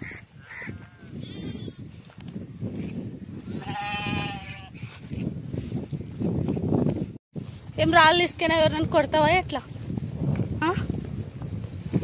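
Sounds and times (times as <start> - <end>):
sheep bleating: 3.5 - 4.7.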